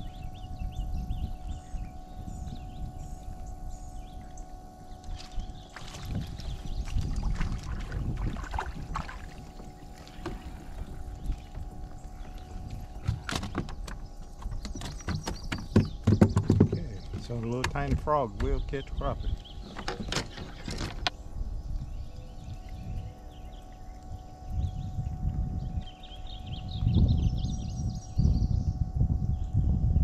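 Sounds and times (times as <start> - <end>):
faint steady hum: 0.0 - 30.0
low rumble of water: 0.0 - 30.0
wind: 0.0 - 30.0
clicks and knocks on kayak: 10.0 - 11.6, 12.2 - 18.7, 19.6 - 21.2.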